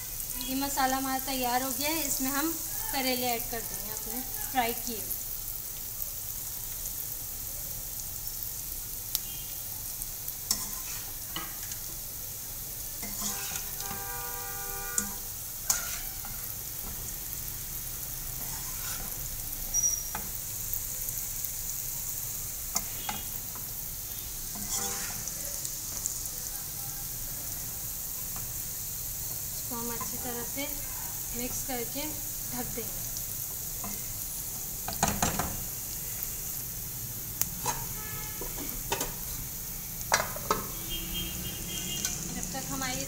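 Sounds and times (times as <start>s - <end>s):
masala sizzling in a wok: 0.0s - 43.0s
metal spoon stirring: 13.0s - 13.7s, 15.0s - 16.4s, 24.5s - 25.4s.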